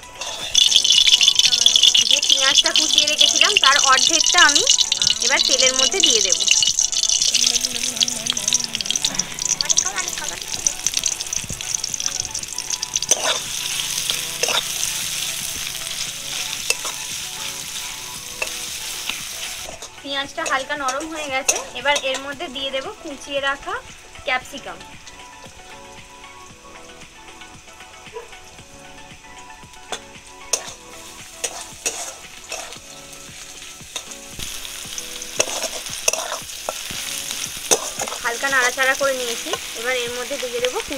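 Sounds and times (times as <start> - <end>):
onions sizzling in hot oil: 0.0 - 40.9
steel spatula scraping pan: 0.1 - 2.1, 12.9 - 15.2, 31.4 - 32.8.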